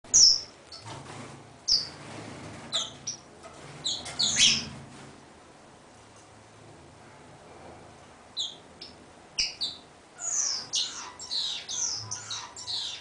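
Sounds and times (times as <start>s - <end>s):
finch chirping: 0.1s - 0.9s, 1.7s - 2.0s, 2.7s - 4.8s, 8.4s - 13.0s.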